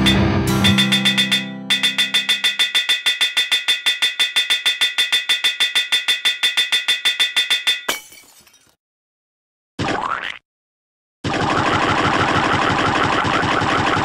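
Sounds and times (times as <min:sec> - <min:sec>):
low held tone: 0:00.0 - 0:06.7
rapid metallic anvil clangs: 0:00.6 - 0:08.1.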